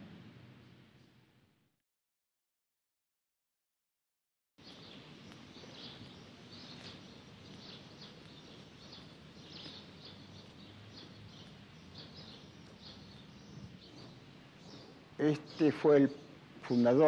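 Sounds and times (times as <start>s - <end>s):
outdoor background hiss: 0.0s - 1.7s, 4.6s - 17.0s
birds chirping faintly: 4.6s - 17.0s.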